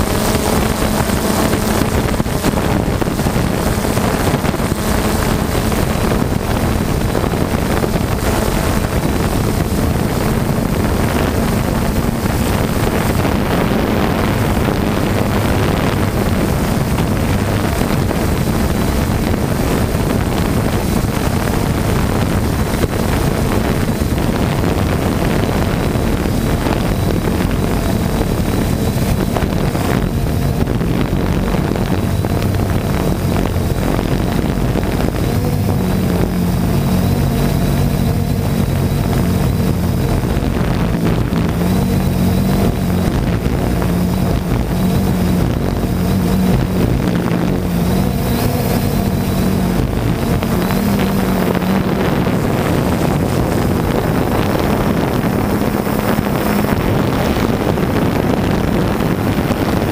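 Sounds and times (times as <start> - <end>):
drone propellers humming: 0.0 - 59.9
wind rushing over microphone: 0.0 - 59.9.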